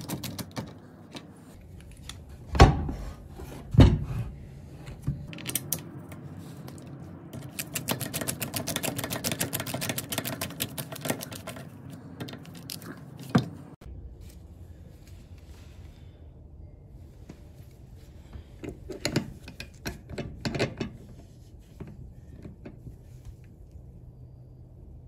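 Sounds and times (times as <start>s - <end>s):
rapid even clicking: 7.4s - 12.8s.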